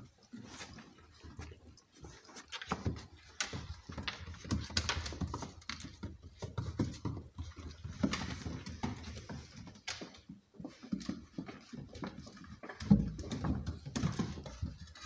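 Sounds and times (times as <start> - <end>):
paws scrabbling on wooden floor: 0.0 - 15.0.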